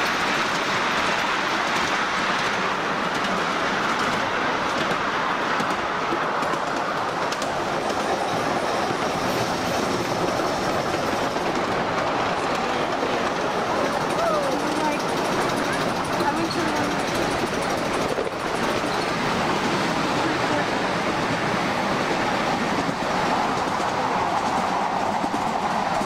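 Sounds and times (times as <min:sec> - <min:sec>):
miniature train rumble: 0:00.0 - 0:26.0
small wheels clattering on rails: 0:05.6 - 0:19.3.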